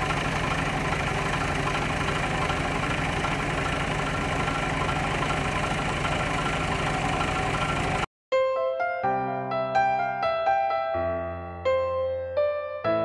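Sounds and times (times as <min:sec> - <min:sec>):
vehicle engine idling: 0:00.0 - 0:08.1.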